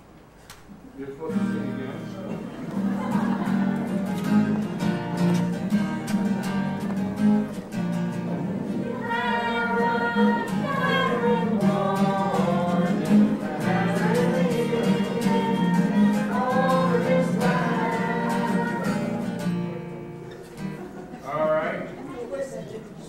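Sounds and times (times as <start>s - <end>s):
acoustic guitars strumming: 1.2s - 21.9s
person singing: 8.9s - 19.3s.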